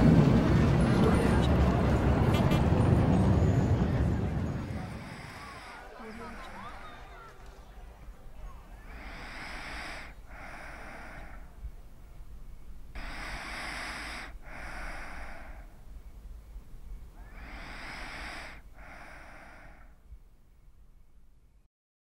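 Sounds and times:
person breathing deeply: 4.8 - 6.9, 8.8 - 11.9, 12.9 - 16.1, 17.1 - 20.1.

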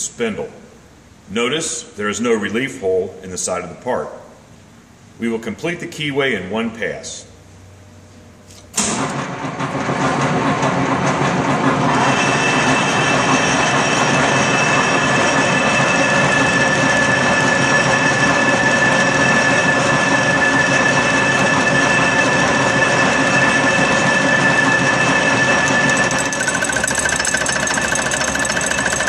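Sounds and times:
milling machine running: 9.0 - 29.0
high-pitched whine: 11.8 - 29.0.

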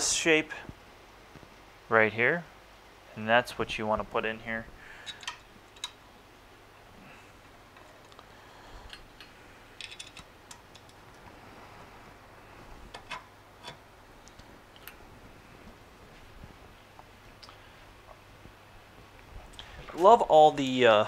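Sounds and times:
small metal parts clicking: 8.9 - 11.0.

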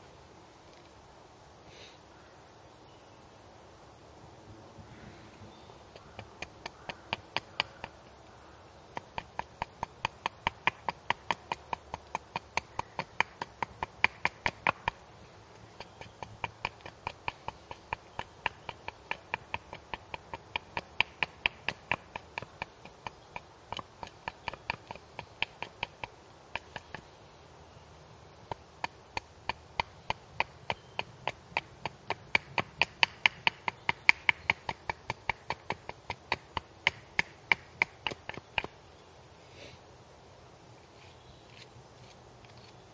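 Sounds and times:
hatchet chopping wood: 5.9 - 8.1, 8.9 - 15.0, 15.6 - 27.1, 28.4 - 38.8.

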